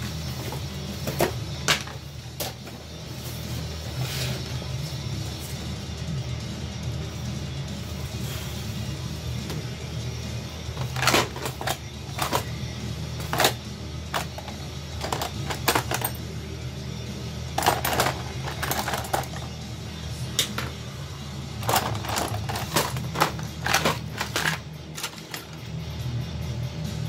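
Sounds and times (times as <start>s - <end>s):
low background music: 0.0s - 27.0s
small tools handled: 13.2s - 16.2s, 17.6s - 19.6s, 21.6s - 25.6s.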